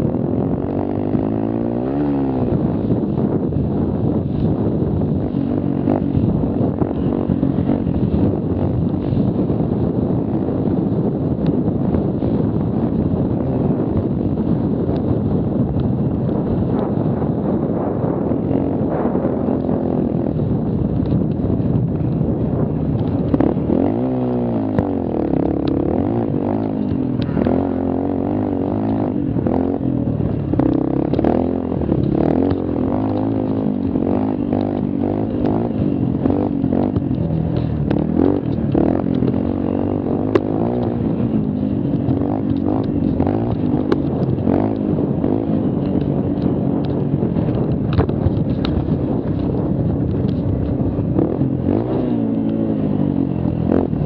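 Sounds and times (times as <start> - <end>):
mini quad engine revving: 0.0 - 9.3, 22.4 - 54.0.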